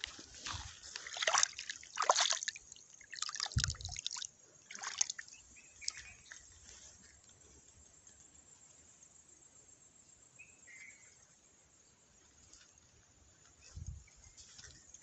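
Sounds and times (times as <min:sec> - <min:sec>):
pond water sloshing and splashing: 0:00.0 - 0:07.1.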